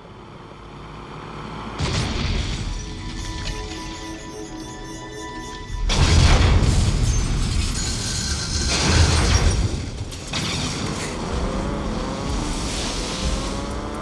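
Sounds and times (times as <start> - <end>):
metal grinding: 2.7 - 6.2
debris clattering: 5.8 - 11.8.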